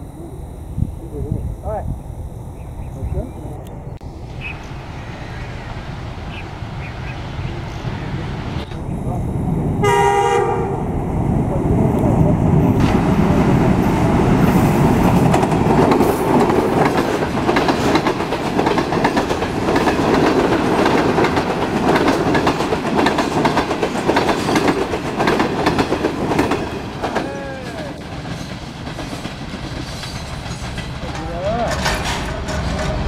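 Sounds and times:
train rumbling past: 0.0 - 33.0
wheels clacking over rail joints: 12.8 - 33.0.

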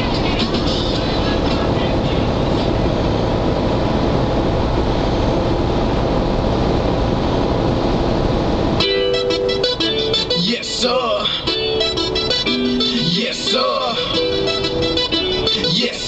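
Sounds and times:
music: 0.0 - 2.8, 8.8 - 16.0
car road noise: 0.0 - 16.0.

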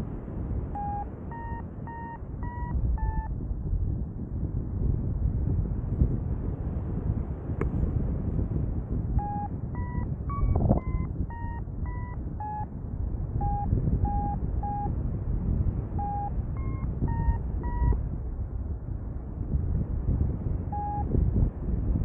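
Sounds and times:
wind on microphone: 0.0 - 22.0
variometer beeping: 0.7 - 3.3, 9.2 - 12.7, 13.4 - 15.0, 16.0 - 18.0, 20.7 - 21.1.

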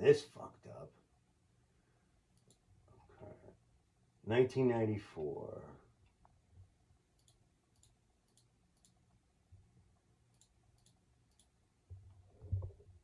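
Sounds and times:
faint computer mouse clicks: 2.4 - 2.6, 7.2 - 9.0, 10.3 - 11.5.

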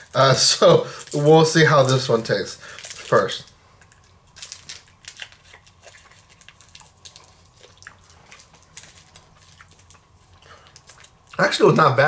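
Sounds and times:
wet chewing clicks: 3.8 - 11.4.

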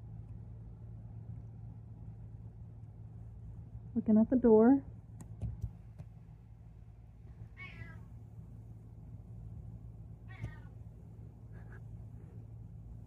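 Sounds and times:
cat meowing: 7.6 - 8.1, 10.3 - 10.7.

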